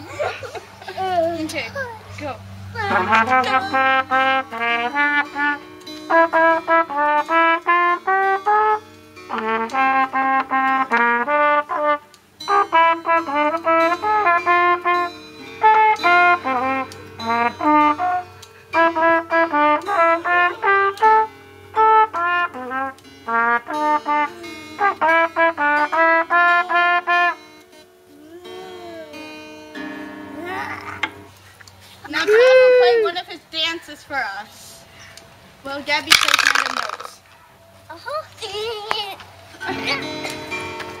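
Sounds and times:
trumpet melody: 2.8s - 31.3s.

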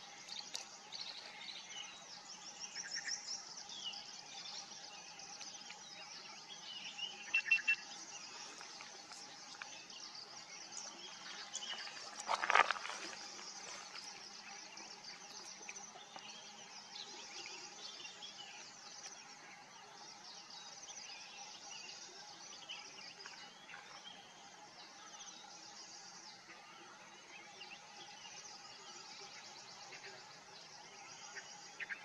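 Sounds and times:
distant birds chirping: 0.0s - 32.0s
insects chirping: 0.0s - 32.0s.

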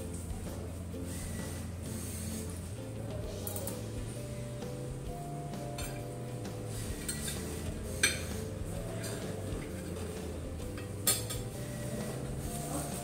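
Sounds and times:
cutlery clinking on ceramic plate: 7.0s - 8.4s, 10.8s - 11.5s.

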